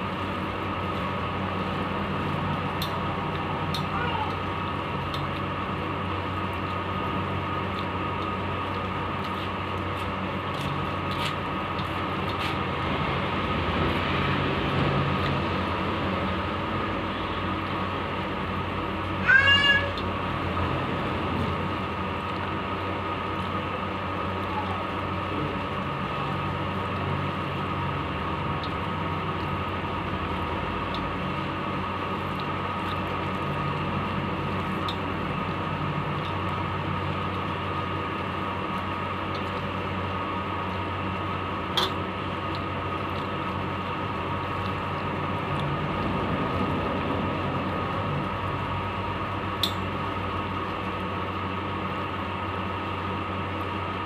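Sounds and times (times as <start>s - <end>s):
steady background hum: 0.0s - 54.0s
cat meowing: 3.9s - 4.4s, 19.2s - 20.0s.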